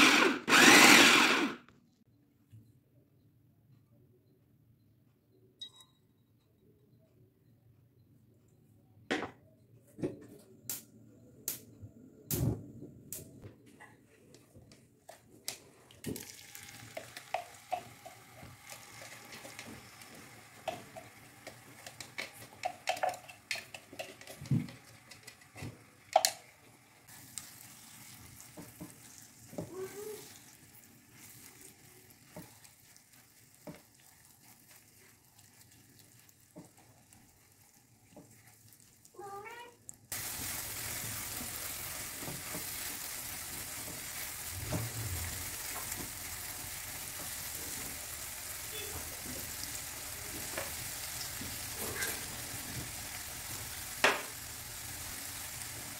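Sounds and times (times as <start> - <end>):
chili frying in hot oil: 15.5 - 55.9
spatula scraping a pan: 51.6 - 52.6.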